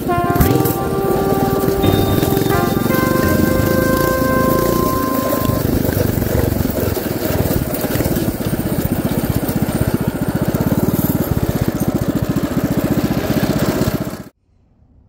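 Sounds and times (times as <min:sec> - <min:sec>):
mini bike engine running: 0:05.5 - 0:14.3.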